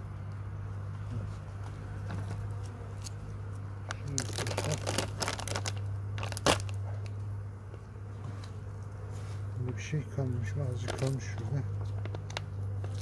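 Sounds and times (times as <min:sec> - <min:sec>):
steady low hum: 0:00.0 - 0:13.0
hive tool scraping: 0:00.9 - 0:13.0
plastic bag crinkling: 0:04.0 - 0:06.8, 0:10.8 - 0:11.3.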